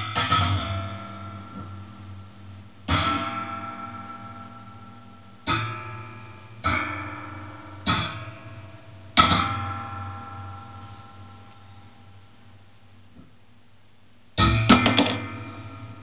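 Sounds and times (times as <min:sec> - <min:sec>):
steady low hum: 0:00.0 - 0:16.0
metallic spring twangs: 0:02.9 - 0:08.6.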